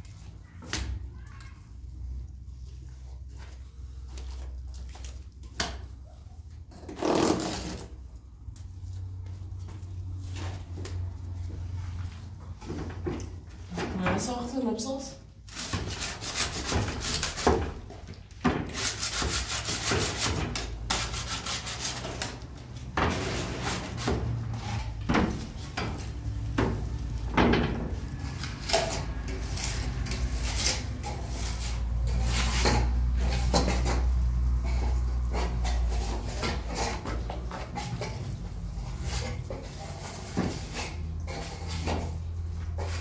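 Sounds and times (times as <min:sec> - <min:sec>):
trowel scraping plaster: 0:06.7 - 0:08.0, 0:15.5 - 0:17.9, 0:18.7 - 0:22.4, 0:28.3 - 0:38.2.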